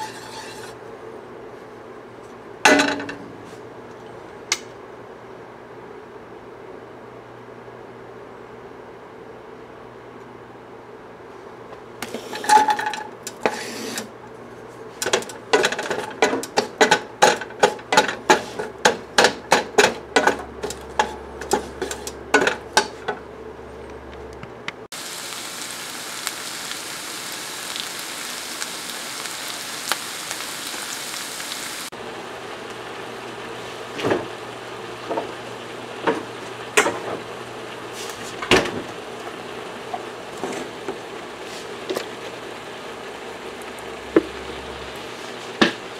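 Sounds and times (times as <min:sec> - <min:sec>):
meat sizzling in a frying pan: 0:00.0 - 0:00.7, 0:24.9 - 0:45.9
wooden spatula knocking a pan: 0:15.1 - 0:21.7, 0:45.6 - 0:45.8.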